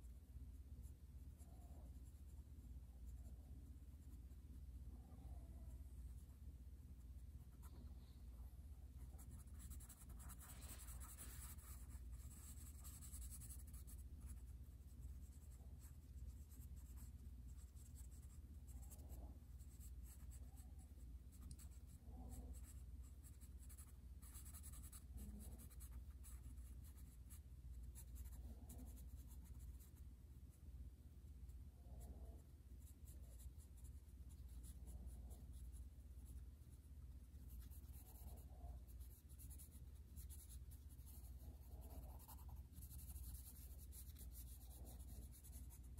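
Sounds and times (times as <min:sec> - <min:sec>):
low steady hum: 0:00.0 - 0:45.9
pencil scratching on paper: 0:09.0 - 0:30.0, 0:37.3 - 0:45.9.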